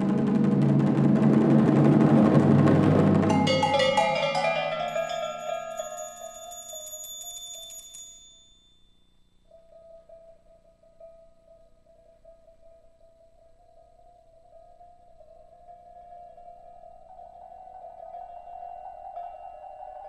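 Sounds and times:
drum roll: 0.0 - 6.5
ringing metal percussion tones: 3.3 - 12.4.

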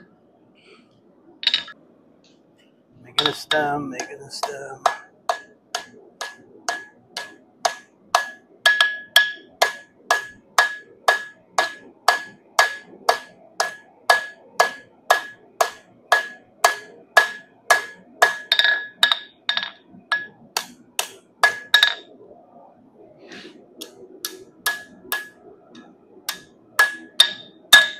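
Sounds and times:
hammer striking bar on anvil: 3.2 - 22.1, 23.8 - 25.4, 26.3 - 27.9.

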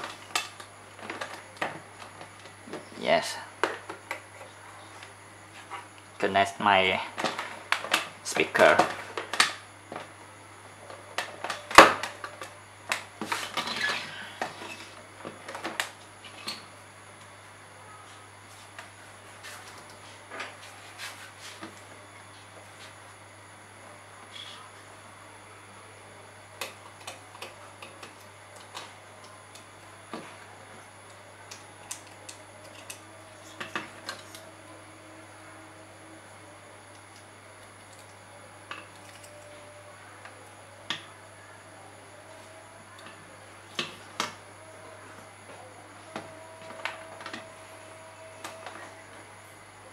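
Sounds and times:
faint low hum: 0.0 - 49.9.

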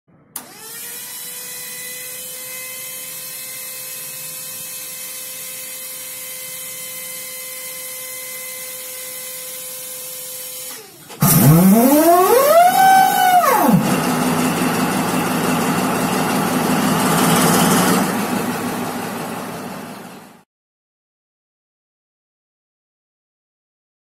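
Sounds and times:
motor whine: 6.6 - 16.5.

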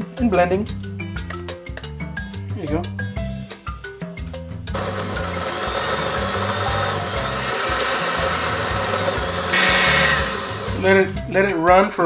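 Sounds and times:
background music: 0.0 - 12.0
blender running: 4.7 - 11.0.

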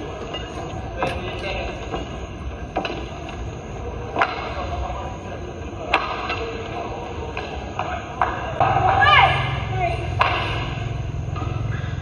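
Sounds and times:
murmur of arena hall: 0.0 - 12.0
racket hitting shuttlecock: 10.1 - 11.9.

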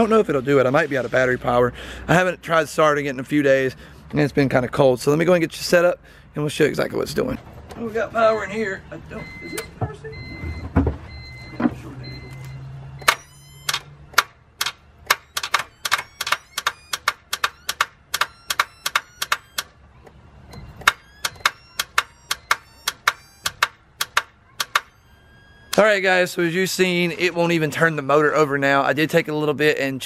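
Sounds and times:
repeating beep: 9.2 - 14.0, 15.1 - 19.7, 20.4 - 23.8
car starter clicking rapidly: 13.0 - 19.7, 20.5 - 24.9.

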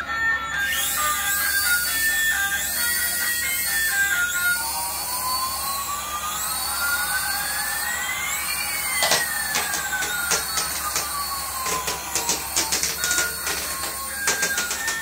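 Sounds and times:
electronic jet flyby whine: 0.0 - 15.0
sharp clicks: 9.0 - 15.0.

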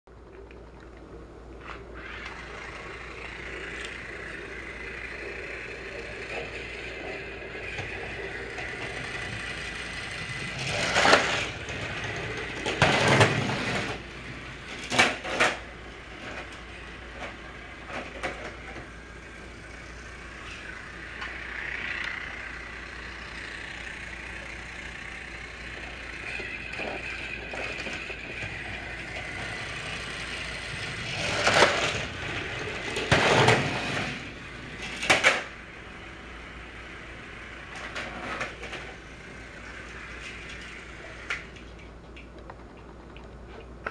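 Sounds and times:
rattling noise: 2.0 - 35.6
toy train motor whirring: 2.0 - 41.9.

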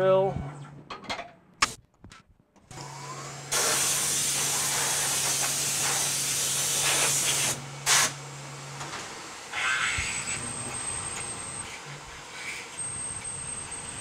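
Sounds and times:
compressed air hissing: 3.5 - 8.2, 9.5 - 10.4
low machine hum: 7.6 - 14.0.

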